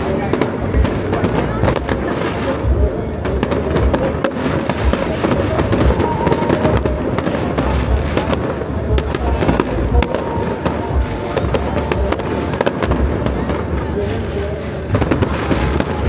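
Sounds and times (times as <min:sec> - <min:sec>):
fireworks cracking and popping: 0:00.0 - 0:16.0
music: 0:00.0 - 0:16.0.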